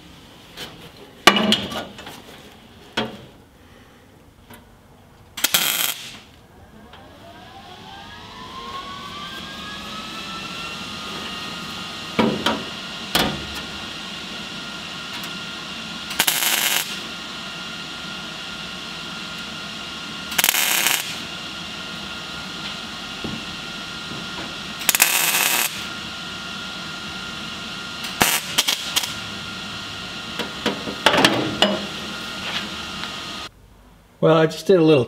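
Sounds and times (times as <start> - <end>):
steady whine: 0.0 - 34.6
welder arc crackle: 5.4 - 6.4, 15.1 - 30.7.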